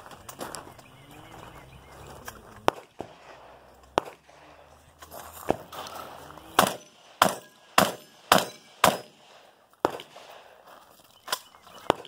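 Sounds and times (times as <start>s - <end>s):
gunshots: 2.5s - 4.8s, 5.4s - 10.6s.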